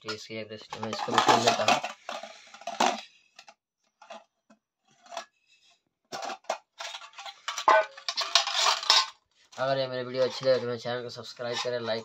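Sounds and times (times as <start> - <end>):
steel containers clinking: 0.1 - 3.1, 6.2 - 9.2.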